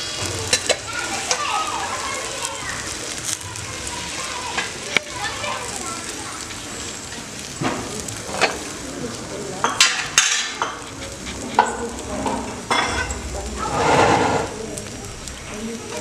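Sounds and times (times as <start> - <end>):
flatbreads sizzling on a griddle: 0.0 - 16.0
fat popping and crackling: 4.5 - 16.0.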